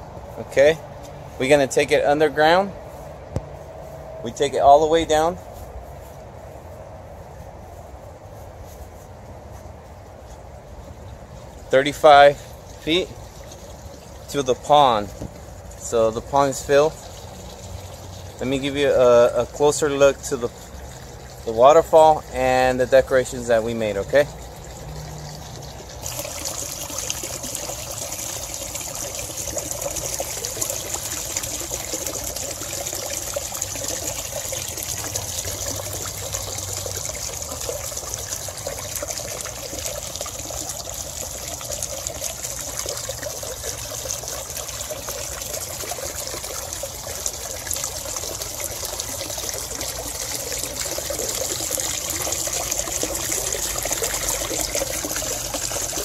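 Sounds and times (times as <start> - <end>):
waterfall pouring into pond: 11.4 - 56.0.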